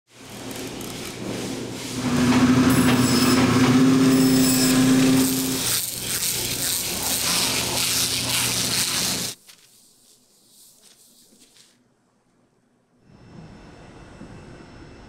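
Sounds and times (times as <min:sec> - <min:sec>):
machinery humming: 0:00.2 - 0:09.4
scaler scraping fish scales: 0:00.3 - 0:11.8
faint high whine: 0:13.0 - 0:15.0.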